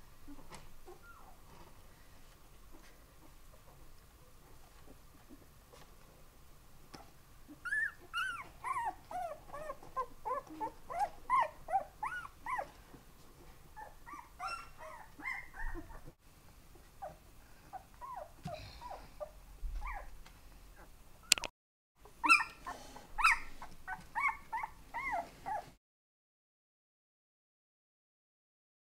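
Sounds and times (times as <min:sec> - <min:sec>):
puppies whimpering and yipping: 0:00.3 - 0:01.6, 0:07.0 - 0:12.9, 0:13.8 - 0:16.2, 0:17.0 - 0:20.2, 0:22.2 - 0:25.8
sharp click: 0:21.3 - 0:21.5.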